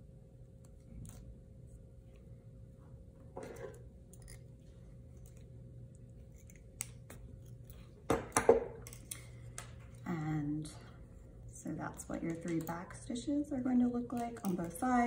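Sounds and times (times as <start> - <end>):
pliers clattering on tabletop: 3.4 - 3.8.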